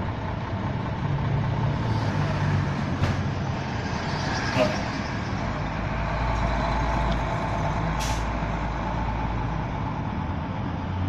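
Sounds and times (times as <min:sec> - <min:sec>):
air brakes hissing: 0:08.0 - 0:08.4.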